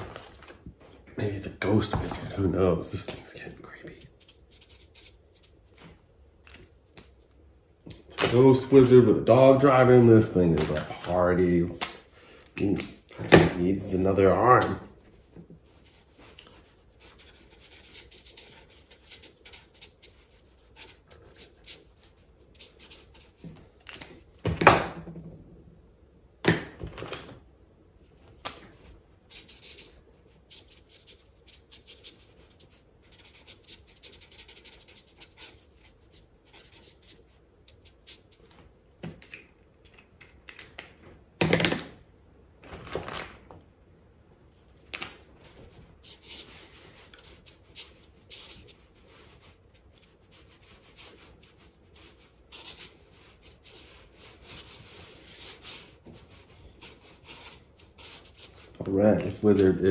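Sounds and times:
marker scratching on paper: 4.0 - 5.9, 15.0 - 23.6, 28.8 - 38.6, 44.6 - 59.7.

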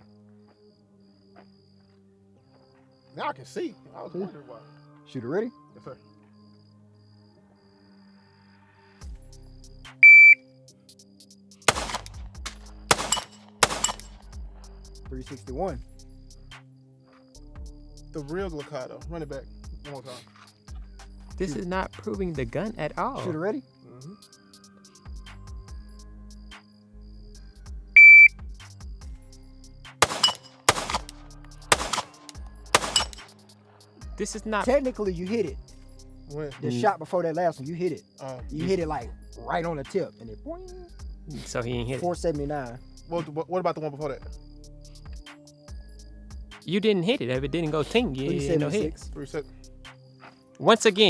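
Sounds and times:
shot timer beep: 10.0 - 10.4, 28.0 - 28.3
pistol shots: 11.7 - 14.2, 30.0 - 33.3.

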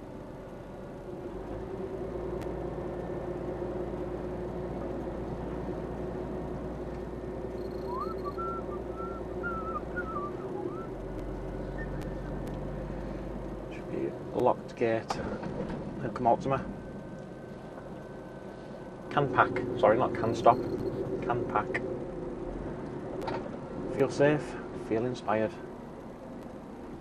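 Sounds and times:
diesel engine and road noise: 0.0 - 27.0
short warbling whistle: 7.6 - 10.9.

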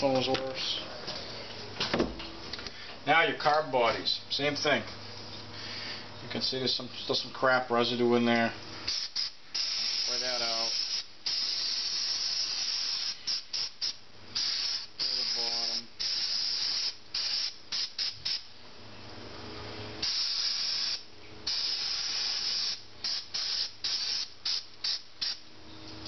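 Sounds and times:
aerosol spray hissing: 8.9 - 18.4, 20.0 - 25.4.

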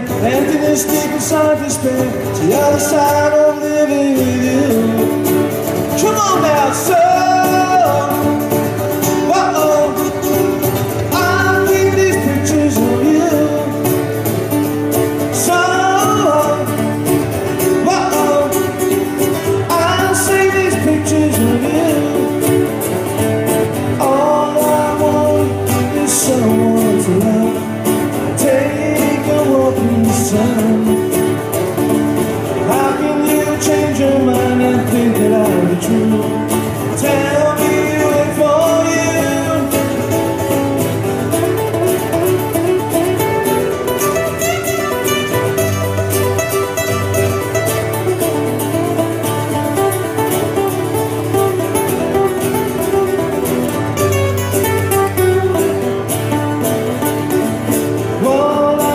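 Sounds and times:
acoustic guitar music: 0.0 - 58.9.

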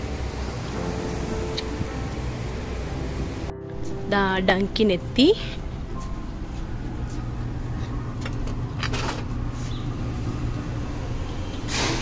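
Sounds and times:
low mechanical hum: 0.0 - 12.0.

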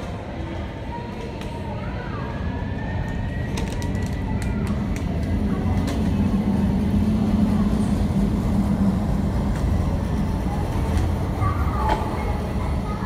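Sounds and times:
jet engine rumble: 0.1 - 13.0.

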